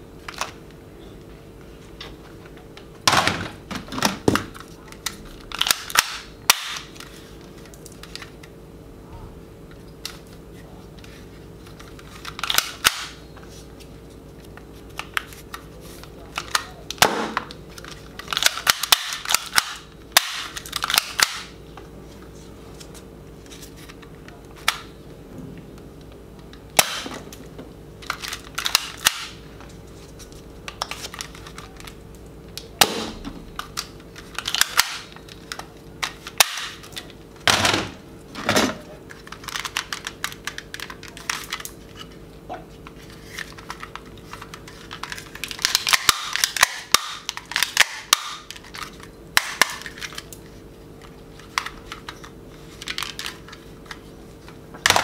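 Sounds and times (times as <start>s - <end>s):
toy guns firing: 45.6s - 48.5s.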